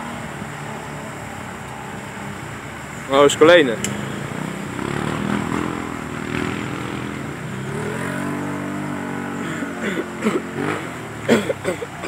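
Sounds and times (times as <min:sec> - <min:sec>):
vehicle wading through mud and water: 0:00.0 - 0:12.0
vehicle engine revving hard: 0:03.3 - 0:12.0.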